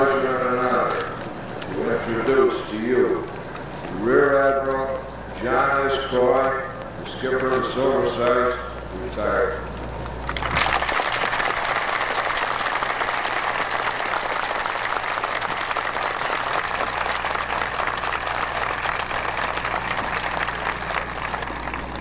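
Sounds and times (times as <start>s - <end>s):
crowd applauding: 10.2s - 22.0s.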